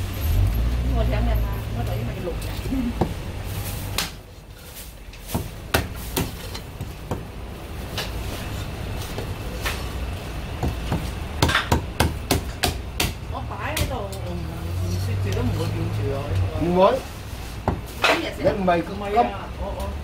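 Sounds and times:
cleaver chopping on wooden block: 0:05.3 - 0:06.4, 0:10.6 - 0:13.2.

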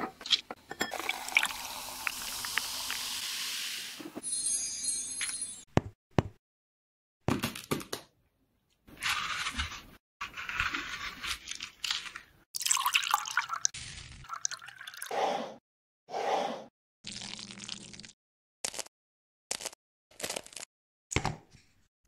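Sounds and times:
liquid pouring into glass dish: 0:00.9 - 0:02.5, 0:12.6 - 0:13.7, 0:14.3 - 0:15.1.

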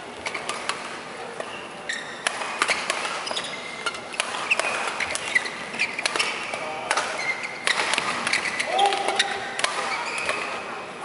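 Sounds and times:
shoes squeaking on court: 0:00.1 - 0:00.8, 0:01.4 - 0:10.8
rackets hitting shuttlecock: 0:00.3 - 0:10.7.

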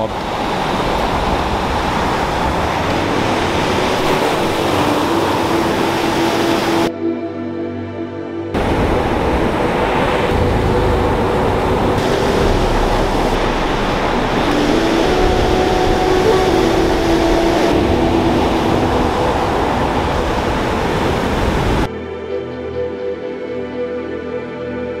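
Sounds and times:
surf breaking on beach: 0:00.0 - 0:06.9, 0:08.6 - 0:21.9
background music: 0:02.9 - 0:20.7, 0:21.8 - 0:25.0.

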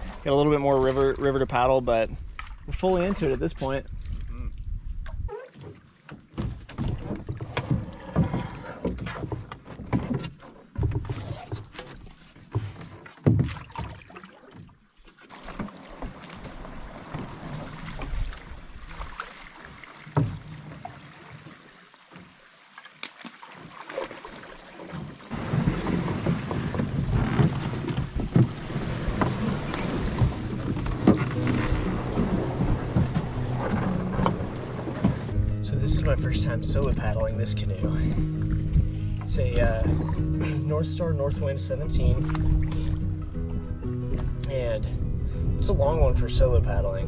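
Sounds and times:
rush of water or wind: 0:00.0 - 0:05.8, 0:15.3 - 0:36.2
paddles knocking against hulls: 0:00.0 - 0:22.4, 0:23.0 - 0:44.8
paddle strokes and splashes: 0:00.0 - 0:47.0.

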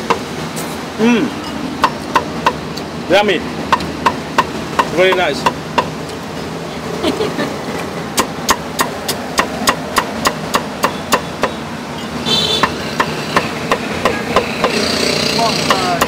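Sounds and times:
cleaver chopping on wooden block: 0:01.8 - 0:02.6, 0:08.2 - 0:11.6, 0:12.6 - 0:16.0.

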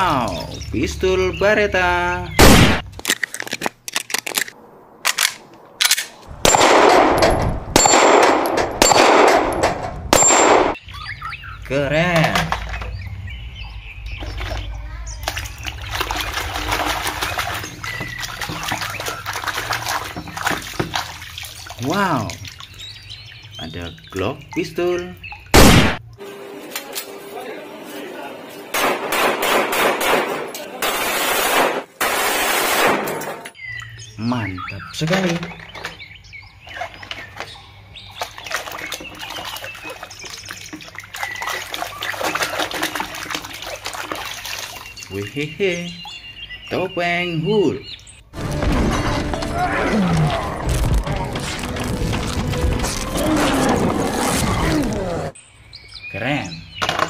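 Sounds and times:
hand squelching through mud: 0:15.2 - 0:22.8, 0:38.1 - 0:45.1.

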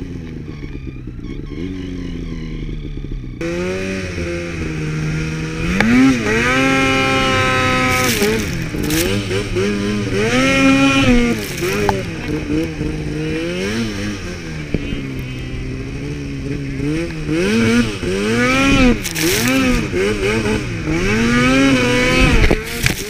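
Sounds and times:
snowmobile engine revving: 0:00.0 - 0:23.0.

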